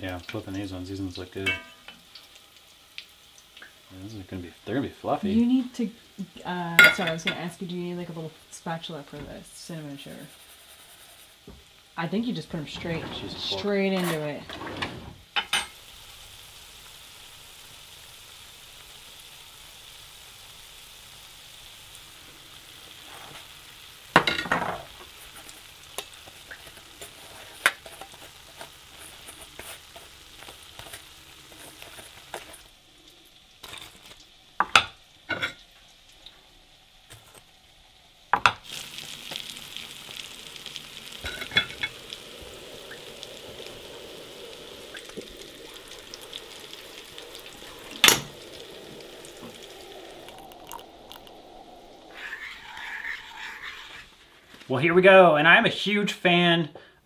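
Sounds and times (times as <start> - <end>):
donuts sizzling in hot fat: 0.0 - 57.0
metal clinks against pot: 1.4 - 1.9.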